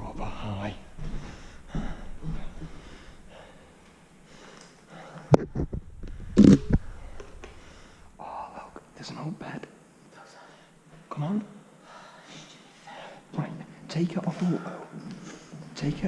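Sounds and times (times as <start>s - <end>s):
footsteps on bare floor: 0.0s - 3.1s.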